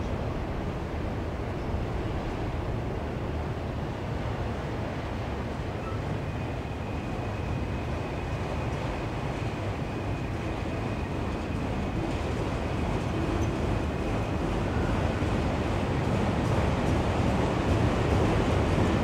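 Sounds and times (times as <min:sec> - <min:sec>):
train wheels rumbling on rails: 0:00.0 - 0:19.0
faint thin squeal: 0:05.8 - 0:06.1.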